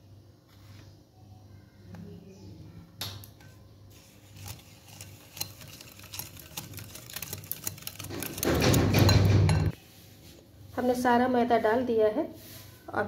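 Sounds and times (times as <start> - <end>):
whisk tapping glass bowl: 4.5 - 9.8.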